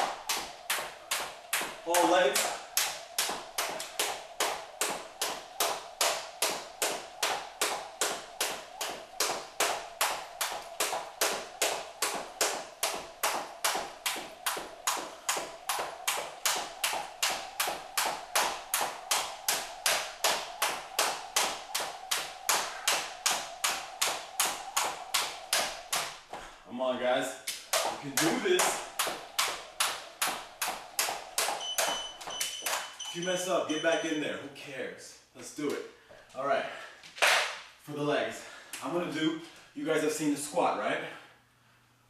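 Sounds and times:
jump rope hitting wooden floor: 0.0 - 26.5, 27.5 - 33.2.

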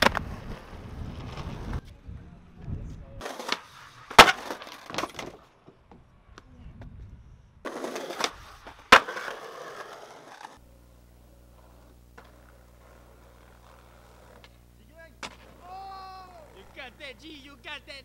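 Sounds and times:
skateboard cracking on ground: 0.0 - 1.8, 3.2 - 5.8, 7.7 - 10.6, 11.5 - 14.6, 15.2 - 16.8
skateboard wheels rolling on pavement: 0.0 - 7.0, 7.6 - 17.6
low steady hum: 10.6 - 18.0.

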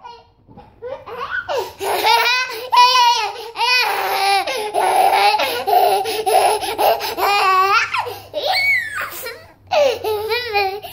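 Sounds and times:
toddler laughing: 0.8 - 10.9
toddler squealing: 7.2 - 9.4.

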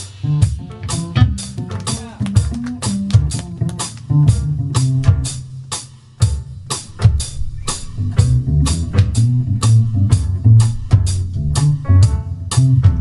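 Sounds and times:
snare and cymbal hits: 0.0 - 2.2
fusion band playing: 0.0 - 13.0
double bass line: 2.4 - 13.0.

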